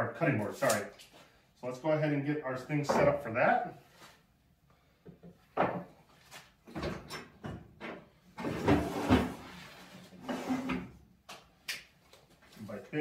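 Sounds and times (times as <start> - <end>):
metal sliding scrape: 8.4 - 10.8.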